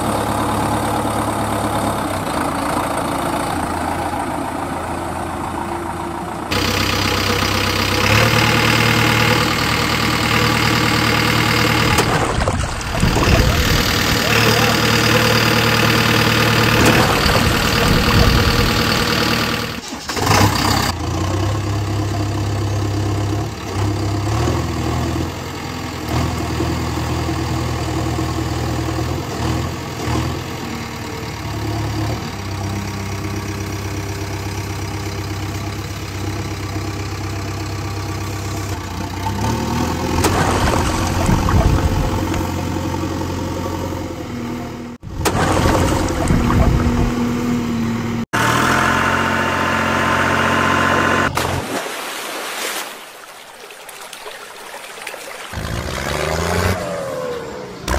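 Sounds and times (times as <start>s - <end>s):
vehicle engine idling: 0.0s - 20.0s, 20.9s - 45.2s.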